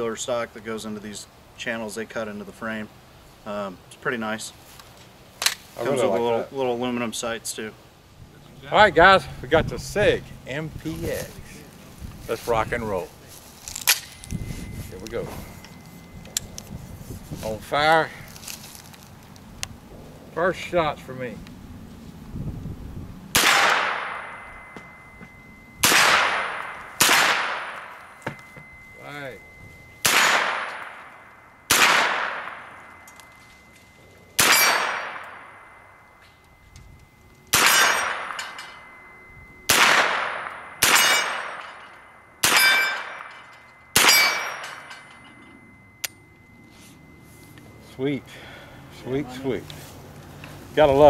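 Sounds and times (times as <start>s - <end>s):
high metallic ping: 12.3s - 19.0s, 23.4s - 49.7s
carbine gunshots: 23.3s - 24.5s, 25.8s - 28.0s, 30.0s - 31.1s, 31.7s - 32.8s, 34.4s - 35.6s, 37.5s - 38.6s, 39.7s - 41.7s, 42.4s - 43.4s, 44.0s - 44.7s.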